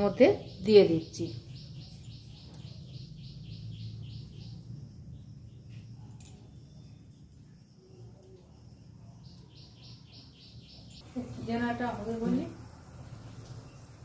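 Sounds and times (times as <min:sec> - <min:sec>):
rapid chirping: 0:00.0 - 0:07.3.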